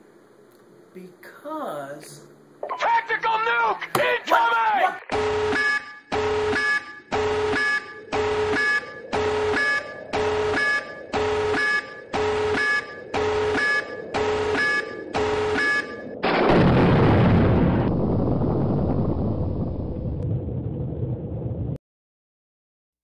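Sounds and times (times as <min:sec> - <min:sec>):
electronic alarm beeping: 0:05.0 - 0:16.2
explosion with rushing rumble: 0:15.1 - 0:21.8.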